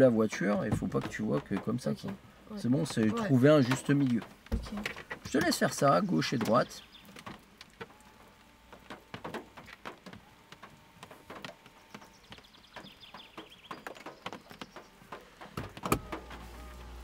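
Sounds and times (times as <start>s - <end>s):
electric mirror motors whirring: 14.5s - 17.0s.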